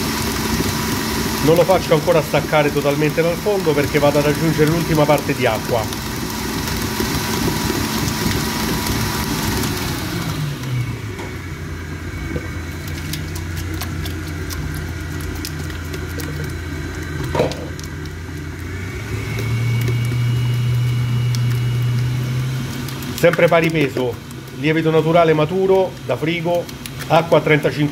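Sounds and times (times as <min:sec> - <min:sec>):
stand mixer motor humming: 0:00.0 - 0:27.9.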